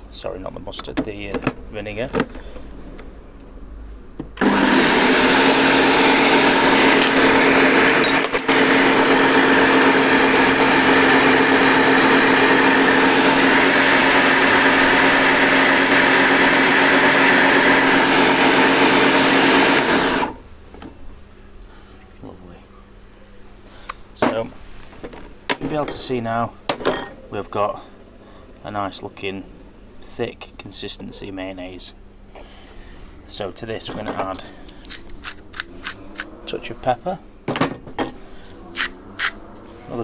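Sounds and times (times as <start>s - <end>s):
blender running: 4.4s - 20.4s.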